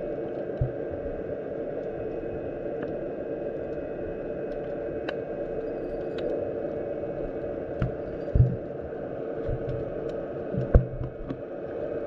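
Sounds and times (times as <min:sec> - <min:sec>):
underwater rushing noise: 0:00.0 - 0:12.0
faint underwater clicks: 0:01.7 - 0:06.4, 0:09.4 - 0:11.4.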